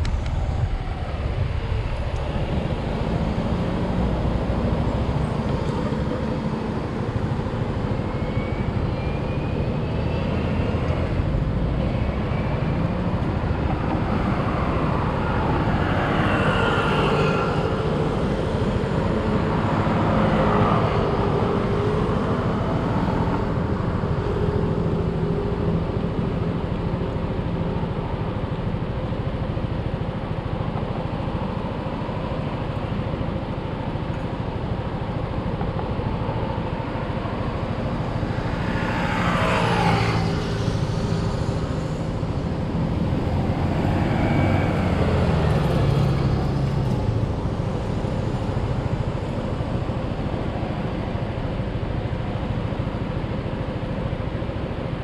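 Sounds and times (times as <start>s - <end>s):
traffic rumble: 0.0s - 55.0s
vehicle engine passing by: 37.9s - 47.4s.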